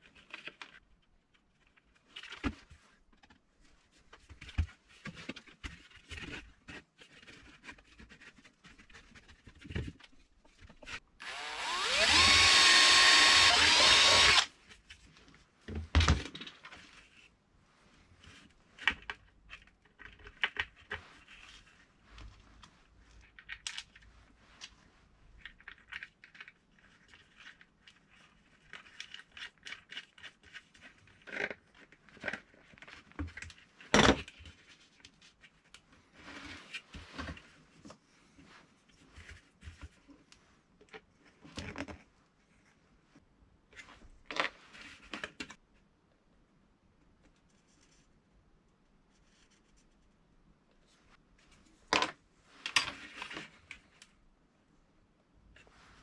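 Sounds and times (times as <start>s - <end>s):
cordless drill spinning: 11.2s - 14.5s.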